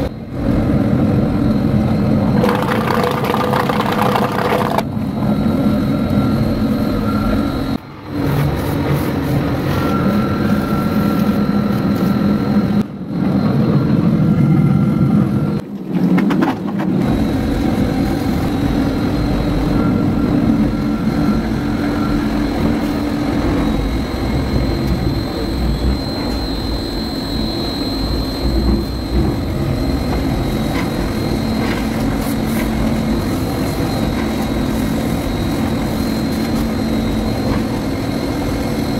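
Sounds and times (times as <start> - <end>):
mixer motor churning paint: 2.4 - 4.9.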